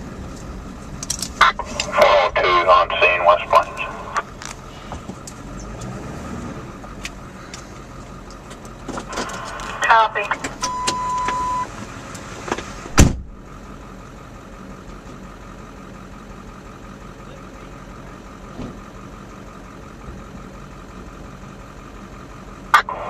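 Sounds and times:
vehicle engine idling: 0:00.0 - 0:23.0
steady beep: 0:10.0 - 0:11.7.

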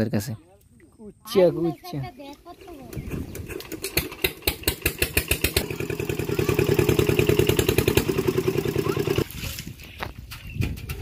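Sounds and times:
water pump engine running: 0:02.9 - 0:09.3.

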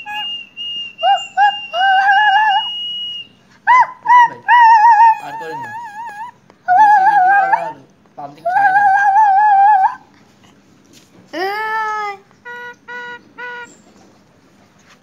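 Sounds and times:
myna whistling: 0:00.0 - 0:07.8.

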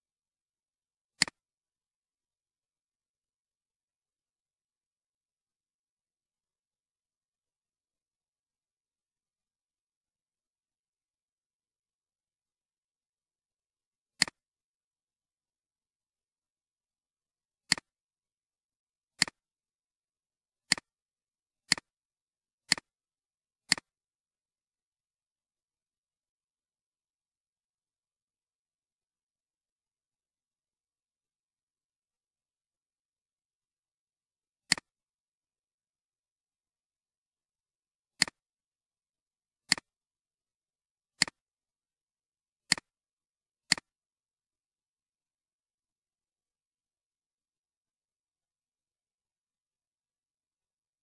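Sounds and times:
computer mouse clicks: 0:01.2 - 0:01.4, 0:14.2 - 0:14.4, 0:17.7 - 0:17.9, 0:19.2 - 0:19.4, 0:20.7 - 0:20.9, 0:21.7 - 0:21.9, 0:22.7 - 0:22.9, 0:23.7 - 0:24.0, 0:34.6 - 0:35.0, 0:38.2 - 0:38.4, 0:39.7 - 0:40.0, 0:41.2 - 0:41.4, 0:42.7 - 0:43.0, 0:43.7 - 0:44.0.

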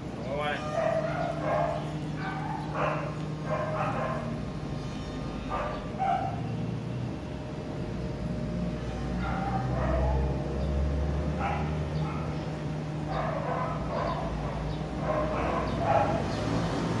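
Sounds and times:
dog barking: 0:00.5 - 0:04.4, 0:05.4 - 0:06.5, 0:09.1 - 0:10.4, 0:11.3 - 0:16.7.

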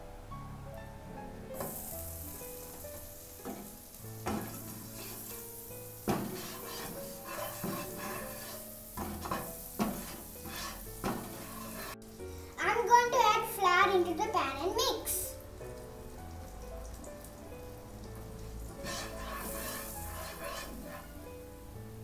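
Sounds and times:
butter sizzling in a frying pan: 0:01.6 - 0:22.0
spatula scraping a pan: 0:02.9 - 0:12.0, 0:18.7 - 0:21.3.

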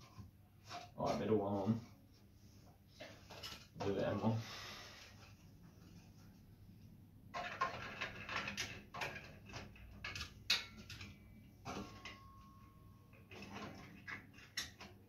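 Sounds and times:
metal parts clicking and rattling: 0:07.3 - 0:12.2.

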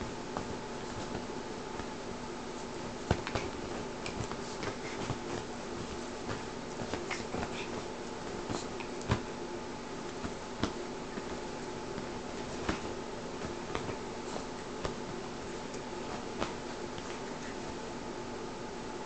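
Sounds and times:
steady low hum: 0:00.0 - 0:19.0
light taps and rustles: 0:00.3 - 0:02.0, 0:02.6 - 0:09.4, 0:10.1 - 0:17.8.

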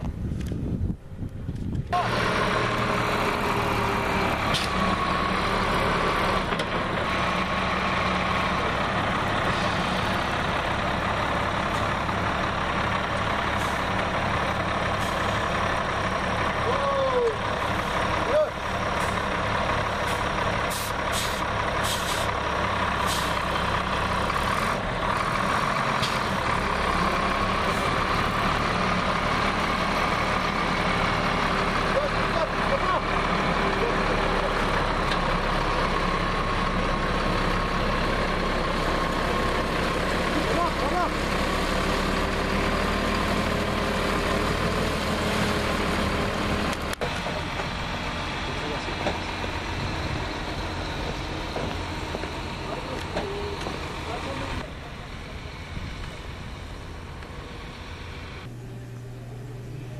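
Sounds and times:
truck engine with whine: 0:00.0 - 0:59.9
short air hisses: 0:20.1 - 0:22.3, 0:23.0 - 0:23.4.

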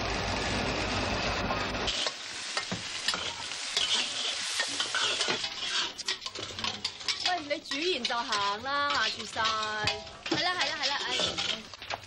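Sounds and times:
food sizzling in woks: 0:00.0 - 0:12.0
metal spatulas scraping woks: 0:01.9 - 0:12.0.

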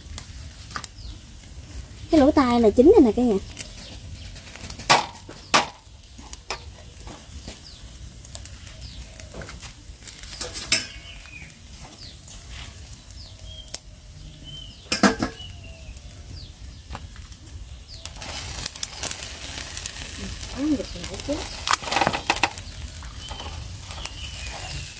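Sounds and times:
meat sizzling on a grill: 0:00.0 - 0:24.9.

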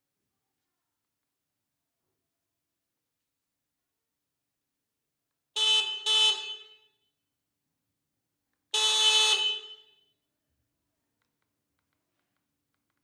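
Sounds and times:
shot clock buzzer horn: 0:05.6 - 0:06.9.

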